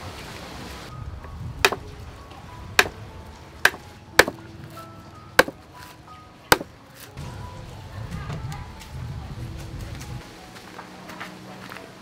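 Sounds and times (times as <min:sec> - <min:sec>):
knife chopping on wooden board: 0:01.6 - 0:01.8, 0:03.6 - 0:04.4.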